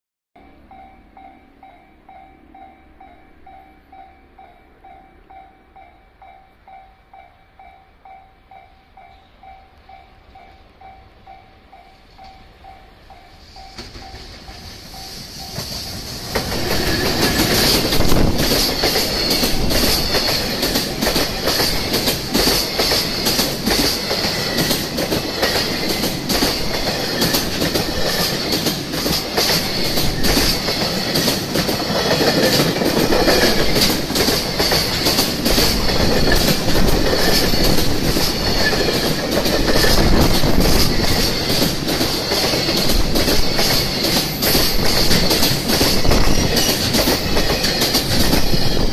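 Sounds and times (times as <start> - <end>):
electric locomotive passing: 0.4 - 48.9
train rushing noise: 0.6 - 48.9
train wheels clacking over rail joints: 13.6 - 48.9.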